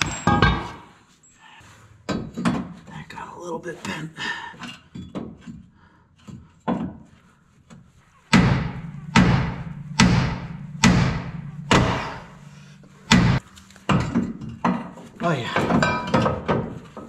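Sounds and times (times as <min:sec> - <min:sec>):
hammer striking steel: 0:08.3 - 0:13.4.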